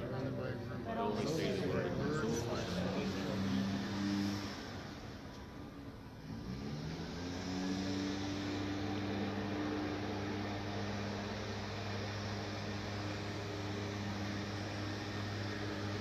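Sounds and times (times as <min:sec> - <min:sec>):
motor or fan hiss: 0:06.2 - 0:16.0.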